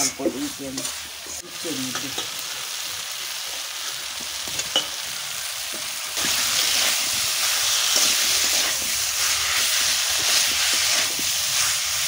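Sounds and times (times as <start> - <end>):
food frying in oil: 0.0 - 12.0
metal spatula scraping a pan: 6.2 - 11.9.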